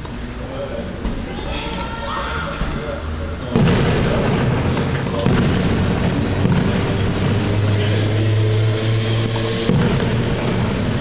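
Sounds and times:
fireworks crackling and rumbling: 3.4 - 11.0
sharp firework bangs: 3.5 - 11.0.

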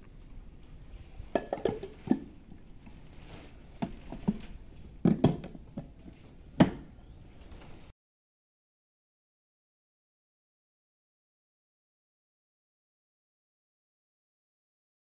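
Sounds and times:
plastic lid clicks and knocks: 5.0 - 6.0.

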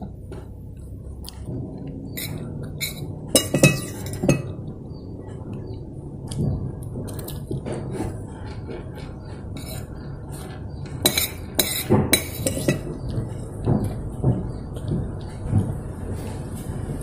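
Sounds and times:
spoon and fork clinking on plate: 2.2 - 4.6, 11.0 - 12.9.

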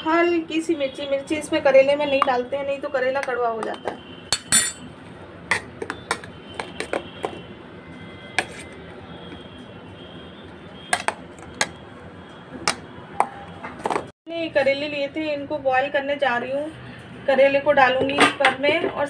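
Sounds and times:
spoon clinking against metal bowl: 4.3 - 4.9.

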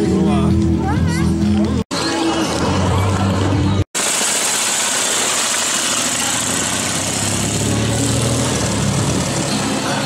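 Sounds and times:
motorcycle engine running: 2.6 - 10.0.

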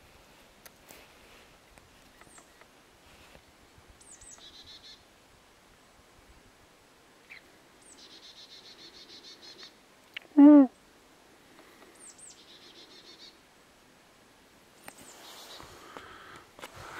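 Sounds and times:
songbird trilling: 4.0 - 5.0.

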